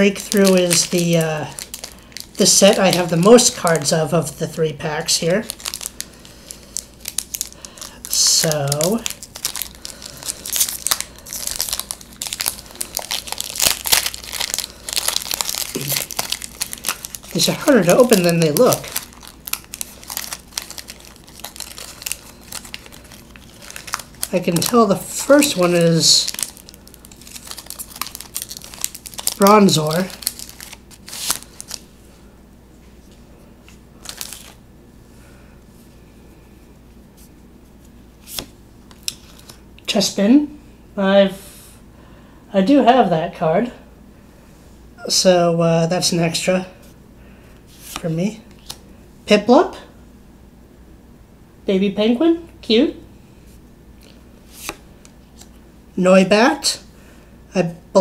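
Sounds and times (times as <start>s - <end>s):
foil wrapper crinkling and tearing: 0.0s - 4.4s, 5.0s - 31.9s, 34.0s - 34.6s, 38.3s - 39.6s.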